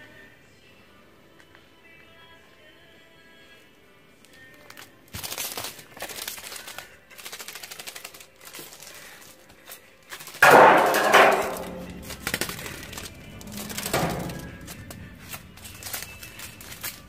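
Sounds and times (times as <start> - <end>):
sticky tape crackling on concrete: 4.2 - 17.0
tape rasping peel: 11.5 - 17.0.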